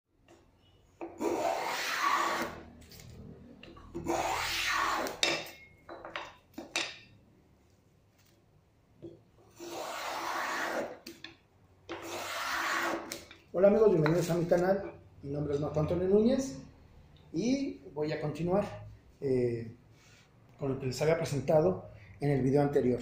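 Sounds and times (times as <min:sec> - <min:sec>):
hand plane shaving wood: 0:01.2 - 0:02.6, 0:04.0 - 0:05.2, 0:09.6 - 0:11.0, 0:12.0 - 0:13.2.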